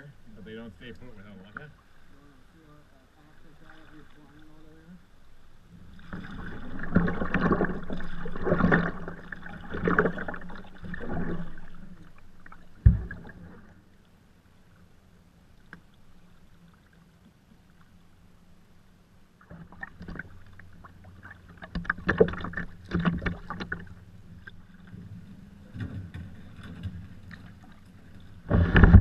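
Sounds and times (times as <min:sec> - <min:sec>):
paddle strokes splashing: 0:05.8 - 0:13.9, 0:19.5 - 0:29.0.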